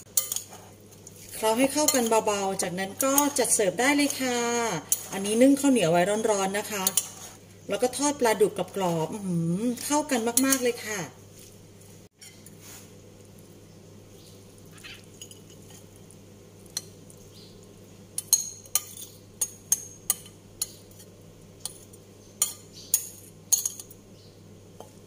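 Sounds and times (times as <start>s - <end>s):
metal spoon clinking on ceramic: 0.2s - 0.5s, 18.2s - 20.8s, 22.4s - 23.9s.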